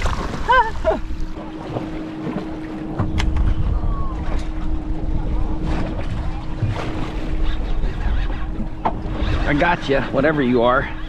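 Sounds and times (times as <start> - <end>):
water lapping against boat: 0.0 - 11.0
wind rumbling on microphone: 3.0 - 10.4.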